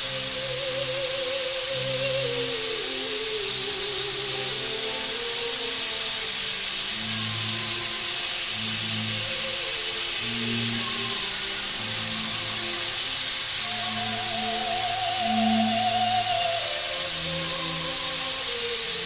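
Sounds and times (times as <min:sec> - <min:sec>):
pressure cooker steam hissing: 0:00.0 - 0:19.0
background music: 0:10.7 - 0:19.0.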